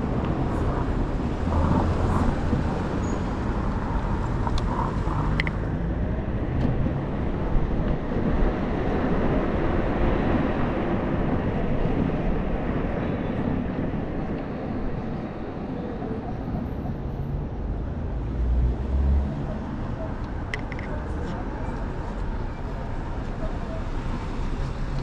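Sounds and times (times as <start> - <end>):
traffic noise: 0.0 - 25.0
wind rumble on microphone: 0.0 - 25.0.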